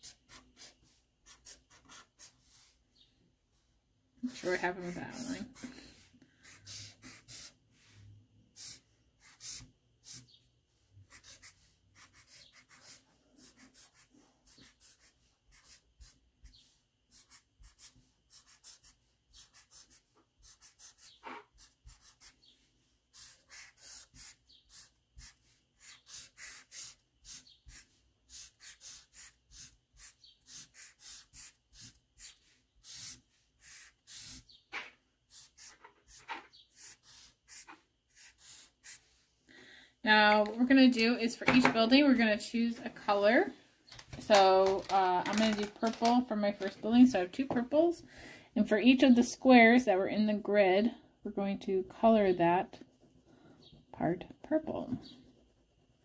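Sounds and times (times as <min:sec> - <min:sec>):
marker scratching on paper: 0:00.0 - 0:02.8, 0:04.3 - 0:39.3, 0:52.0 - 0:56.0.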